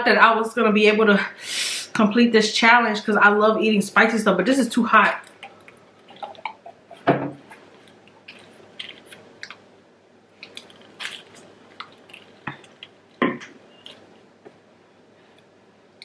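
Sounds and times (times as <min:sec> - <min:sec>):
wet chewing: 0:05.2 - 0:09.7, 0:10.4 - 0:14.2.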